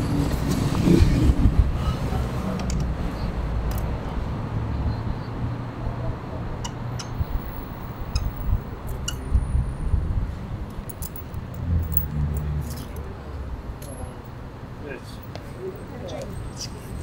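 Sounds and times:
metal parts and tools clinking: 0:10.8 - 0:13.1.

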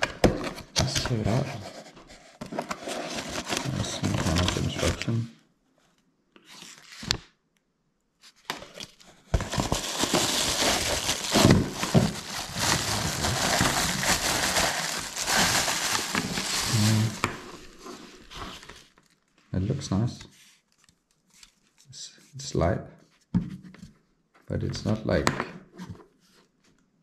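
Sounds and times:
plastic bag crinkling and rustling: 0:02.8 - 0:05.2, 0:08.6 - 0:19.4.

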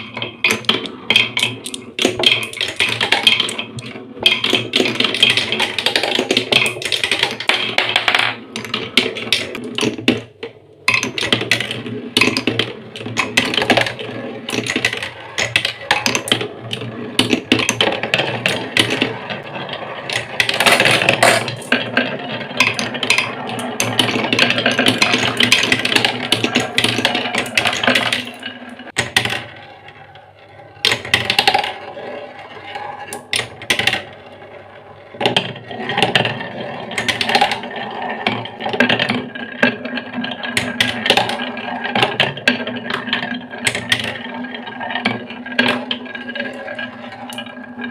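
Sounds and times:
marbles rattling down wooden tracks: 0:00.0 - 0:47.9.

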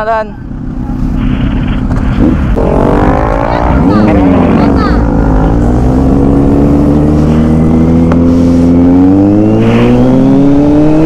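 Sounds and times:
motorcycle engine accelerating: 0:00.0 - 0:11.0.

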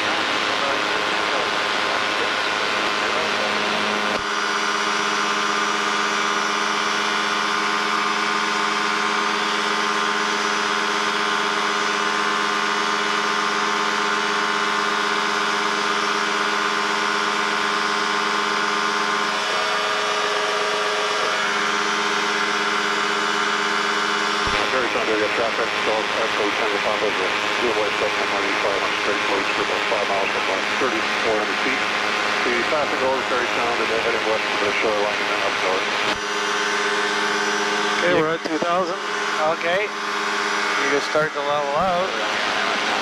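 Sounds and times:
ultralight aircraft engine drone: 0:00.0 - 0:43.0.

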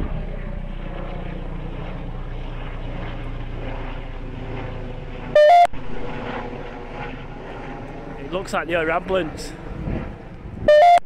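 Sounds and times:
wind on microphone: 0:00.0 - 0:03.2, 0:05.7 - 0:11.0
helicopter engine and rotor drone: 0:00.0 - 0:11.0
loud high-pitched sound: 0:05.4 - 0:05.9.

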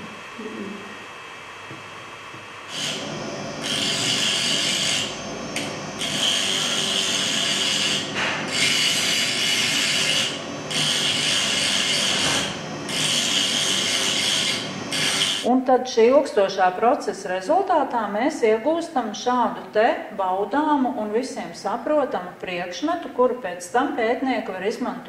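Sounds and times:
power tool grinding scrape: 0:02.7 - 0:15.5.

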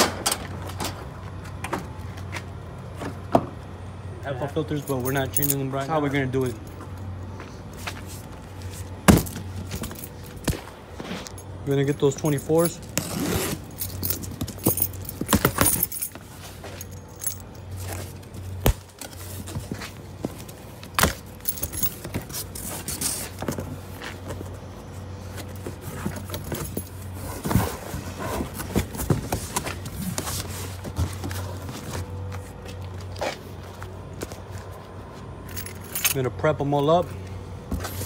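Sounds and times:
steady low hum: 0:00.0 - 0:38.0
gear clicking and rattling: 0:11.2 - 0:24.5
metal jangling: 0:11.3 - 0:18.4, 0:21.3 - 0:23.2, 0:35.5 - 0:36.2
footsteps on rooftop: 0:13.6 - 0:35.6.

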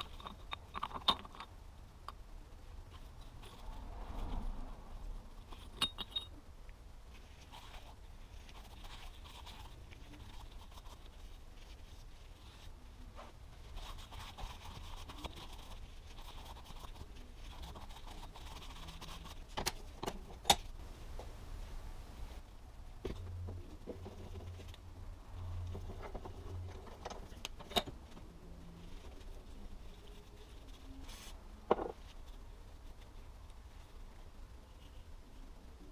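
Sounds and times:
metallic clinks: 0:05.7 - 0:06.4.

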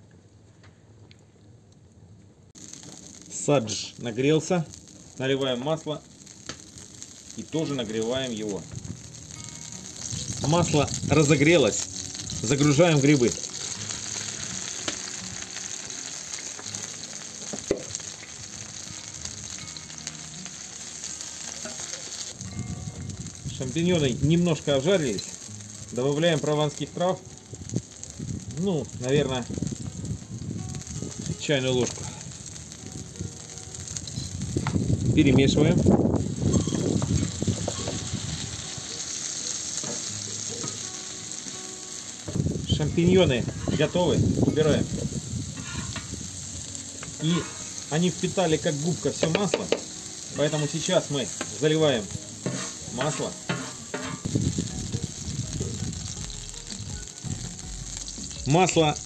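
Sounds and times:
mushrooms sizzling in hot oil: 0:02.5 - 0:59.0
wooden spatula scraping metal: 0:45.6 - 0:46.1, 0:52.4 - 0:54.3.

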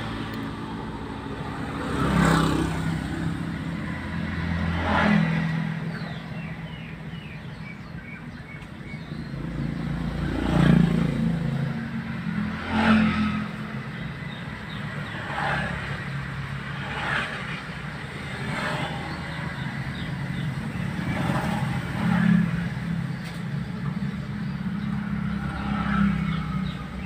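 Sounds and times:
traffic passing: 0:00.0 - 0:27.0.

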